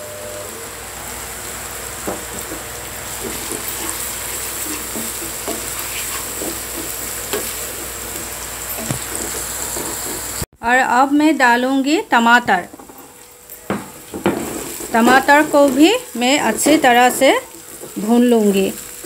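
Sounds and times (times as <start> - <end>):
onions sizzling in hot oil: 0.0 - 10.5, 11.2 - 19.0
wooden spatula scraping pan: 2.1 - 10.4, 13.9 - 19.0.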